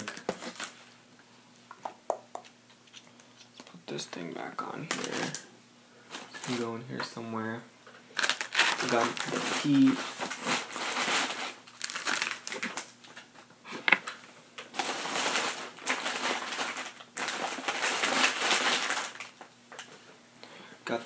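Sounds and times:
plastic packaging crinkling: 0:00.0 - 0:00.9, 0:04.8 - 0:05.5, 0:06.1 - 0:06.8, 0:08.1 - 0:13.4, 0:14.1 - 0:19.9.

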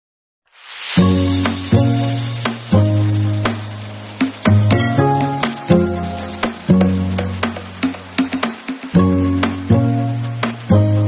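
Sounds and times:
intro music: 0:00.9 - 0:11.0.

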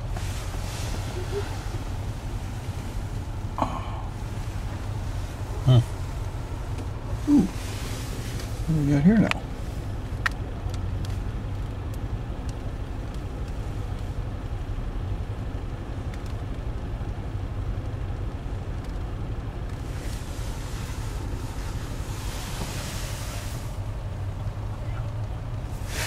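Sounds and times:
hiss: 0:00.0 - 0:03.4, 0:07.1 - 0:08.7, 0:19.8 - 0:23.9, 0:25.7 - 0:26.0
truck engine rumble: 0:00.0 - 0:26.0.

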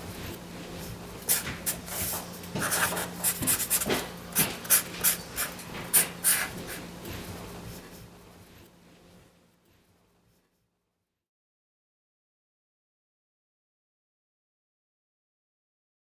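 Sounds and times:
marker scratching on paper: 0:01.3 - 0:06.9.

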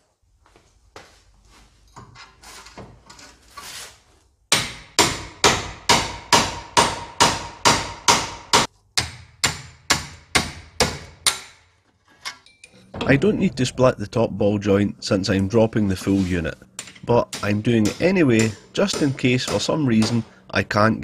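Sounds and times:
hammer striking metal: 0:04.5 - 0:11.8, 0:16.8 - 0:20.4
tool handling: 0:15.9 - 0:17.5.

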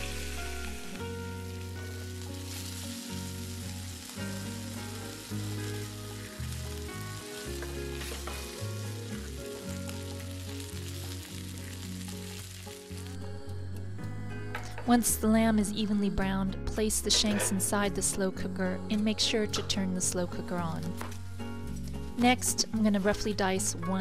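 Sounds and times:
meat sizzling in a frying pan: 0:00.0 - 0:13.2.

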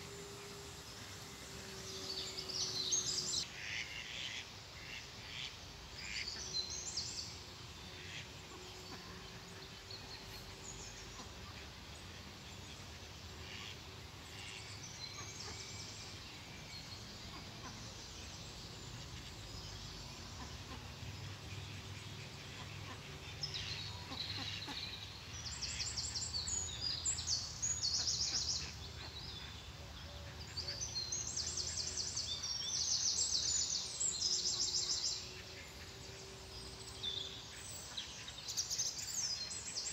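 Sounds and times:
faint hum: 0:00.0 - 0:04.0
songbirds trilling: 0:00.0 - 0:39.9.

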